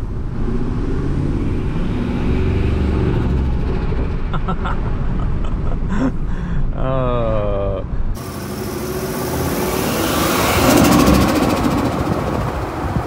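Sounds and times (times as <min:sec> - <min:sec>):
engine revving: 0:00.0 - 0:04.4, 0:08.2 - 0:13.0.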